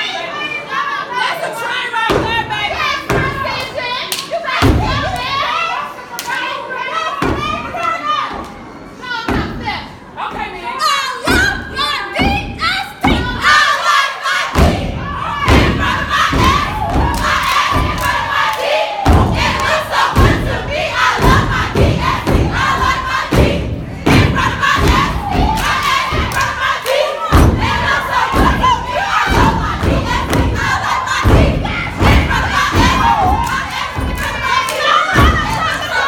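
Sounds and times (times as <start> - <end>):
crowd shouting and cheering: 0.0 - 36.0
rhythmic stomping on a stage: 4.6 - 5.3, 14.5 - 36.0.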